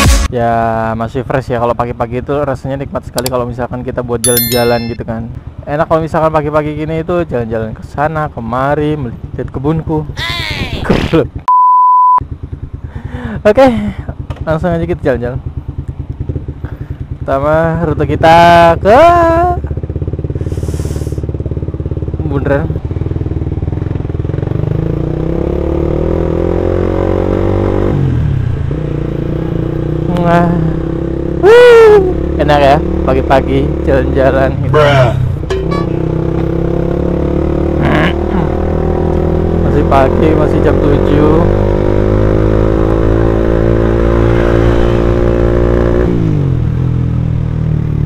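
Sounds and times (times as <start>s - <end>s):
motorcycle engine running: 12.3s - 26.2s, 34.5s - 40.2s
motorcycle engine accelerating: 19.3s - 48.0s.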